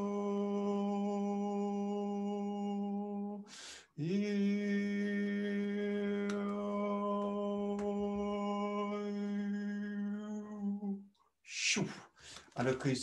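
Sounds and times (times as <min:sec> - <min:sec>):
sharp breath: 0:03.4 - 0:04.0, 0:12.0 - 0:12.6.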